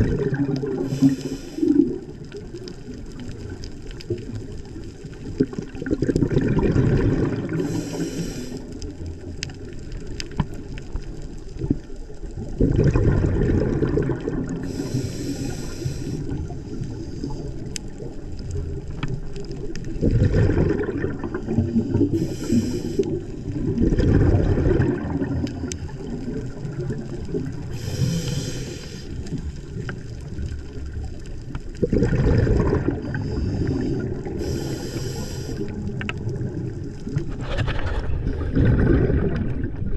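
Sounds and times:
exhaled bubbles rumbling underwater: 0.0 - 39.9
regulator inhale hiss: 0.8 - 2.3, 7.5 - 9.0, 14.6 - 17.7, 21.4 - 23.5, 27.6 - 29.6, 33.0 - 36.0.

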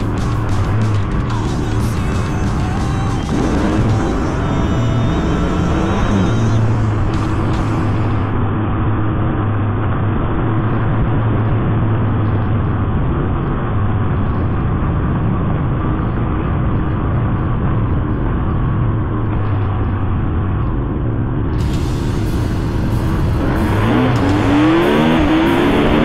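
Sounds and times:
dirt bike engine cruising: 0.0 - 14.0, 21.6 - 26.0
wind noise on microphone: 2.0 - 26.0.

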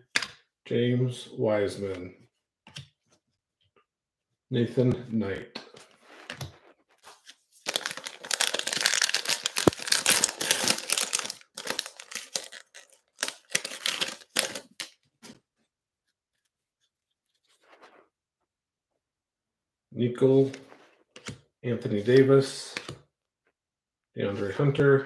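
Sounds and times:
cellophane crinkling: 6.6 - 15.0
cellophane wrapper tearing: 7.6 - 15.0.

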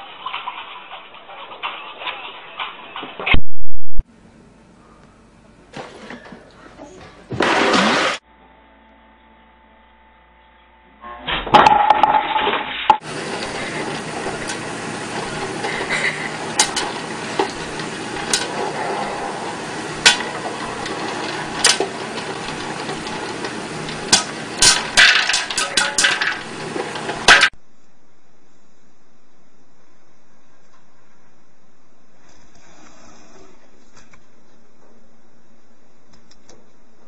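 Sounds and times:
popcorn popper hiss: 0.0 - 3.4, 7.3 - 8.2, 11.5 - 27.6
popcorn kernels popping: 13.0 - 27.6.

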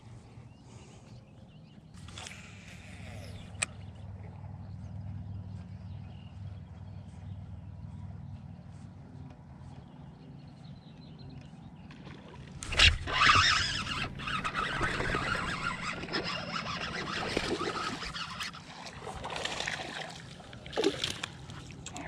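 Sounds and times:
water splashing: 12.2 - 22.0
fishing reel spinning: 12.6 - 18.8.

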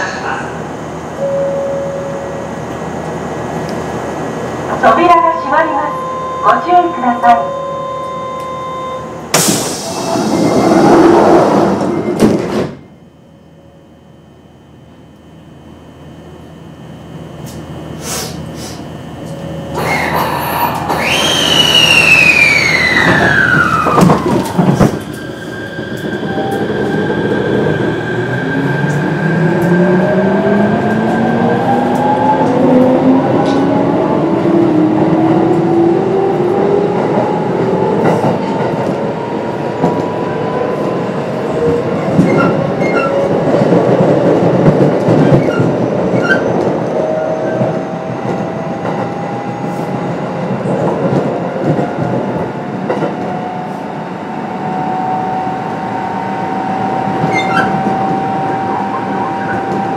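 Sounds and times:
train running rumble: 14.8 - 55.0
electric train motors whining: 18.7 - 40.2.

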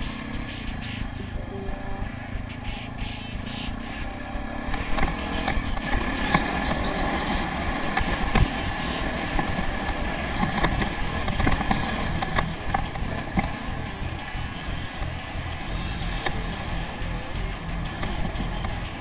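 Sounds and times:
dirt bike engine running: 0.0 - 19.0
wind rumbling on microphone: 0.0 - 19.0.

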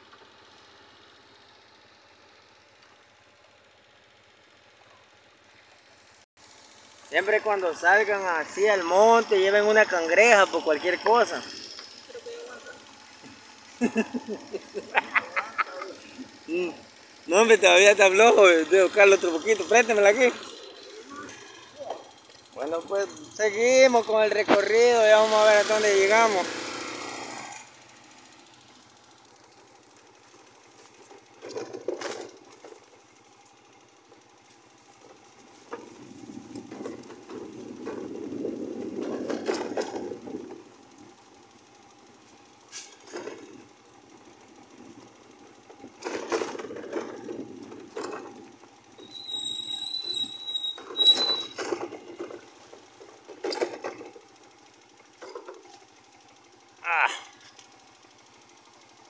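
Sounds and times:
motorcycle engine rattling: 0.0 - 59.0
brief high squeal: 49.0 - 51.6.

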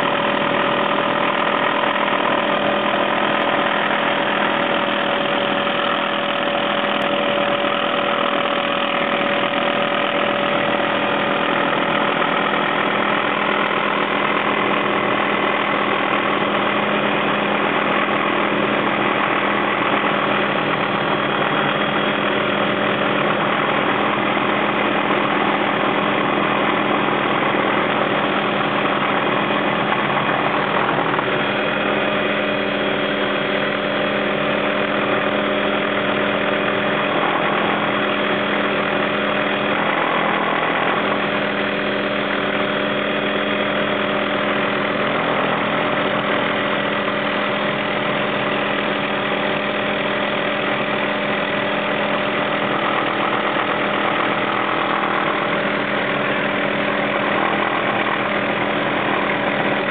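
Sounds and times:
helicopter engine and rotors: 0.0 - 59.9.

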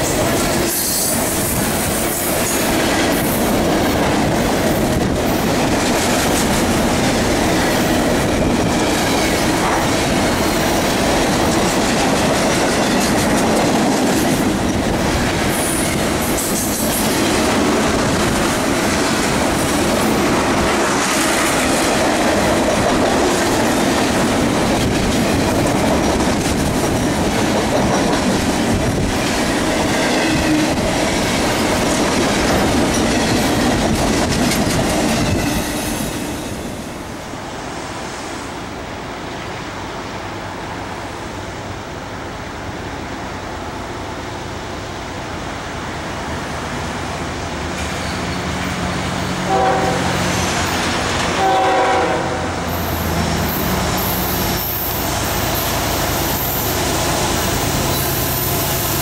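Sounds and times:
freight train wheels clattering: 0.0 - 37.0.

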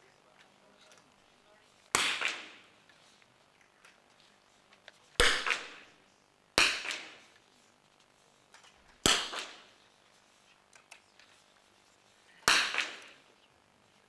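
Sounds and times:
rifle shots with echo: 1.9 - 2.7, 5.2 - 5.9, 9.0 - 9.7, 12.5 - 13.2.

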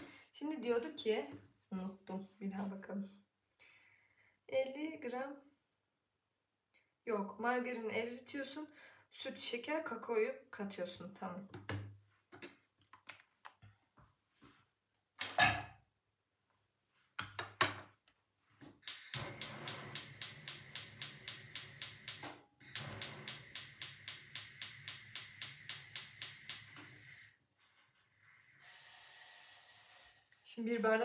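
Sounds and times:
gas hob igniter clicking: 18.8 - 27.2.

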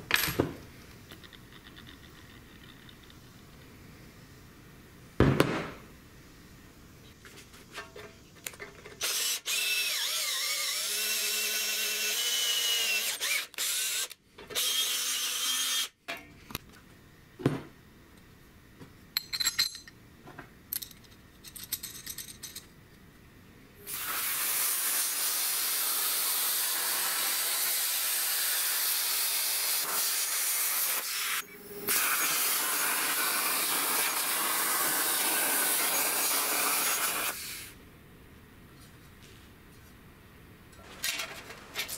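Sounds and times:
power tool running: 9.0 - 15.9
plasma cutter hissing: 23.9 - 37.8.

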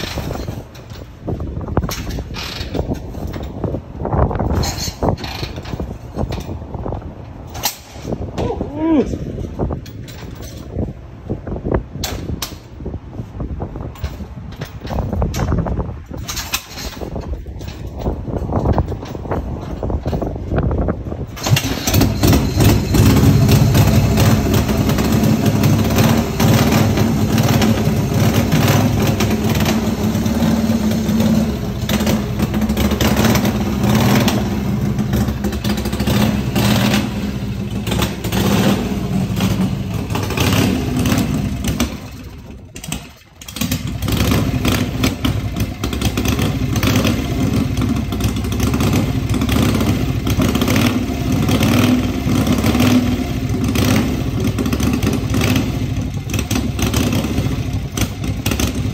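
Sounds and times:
engine throttle blips: 21.0 - 58.9
motorcycle engine running: 21.3 - 58.9.

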